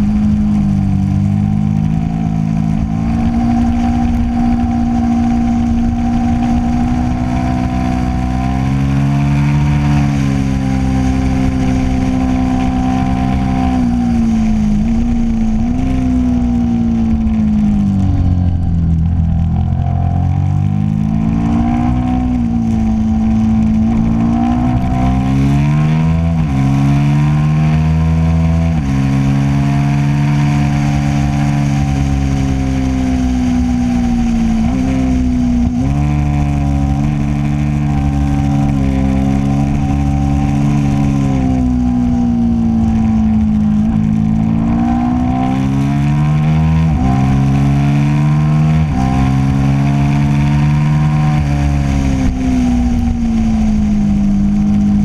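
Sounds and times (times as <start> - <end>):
gear changes: 0.0 - 55.0
motorcycle engine revving: 0.0 - 55.0.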